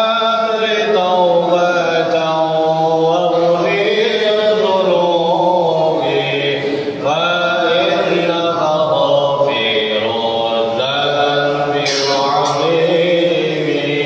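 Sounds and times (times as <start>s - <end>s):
man chanting: 0.0s - 14.0s.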